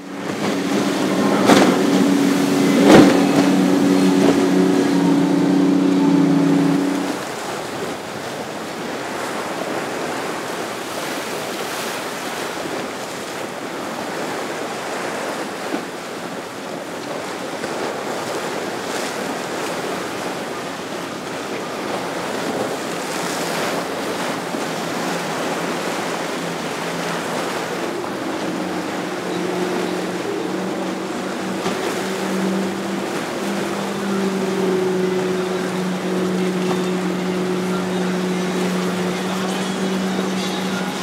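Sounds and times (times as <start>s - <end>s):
wind buffeting microphone: 0.0s - 11.0s
choppy sea water: 0.0s - 41.0s
faint outboard motors humming: 0.0s - 41.0s
wind: 0.0s - 41.0s.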